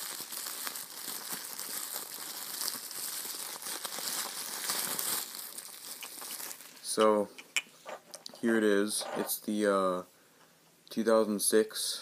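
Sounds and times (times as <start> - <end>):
bubble wrap crinkling: 0.0 - 7.0.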